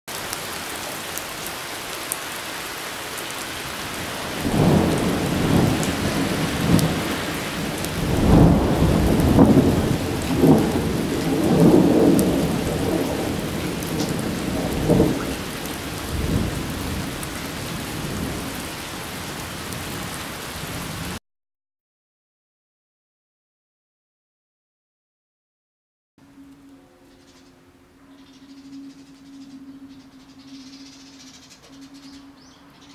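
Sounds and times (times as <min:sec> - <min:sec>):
heavy rain: 0:00.1 - 0:21.2
rolling thunder: 0:04.0 - 0:21.2.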